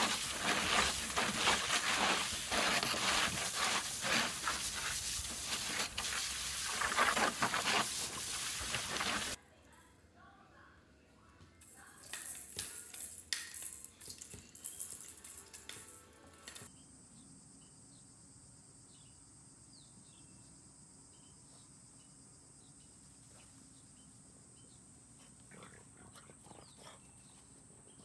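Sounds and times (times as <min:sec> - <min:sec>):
high insect hum: 0:16.7 - 0:28.0.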